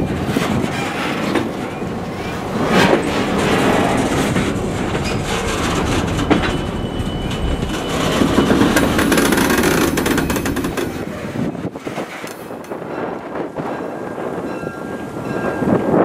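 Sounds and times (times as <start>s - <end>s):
train wheels rolling over rails: 0.0s - 16.0s
clicks over rail joints: 7.3s - 11.1s.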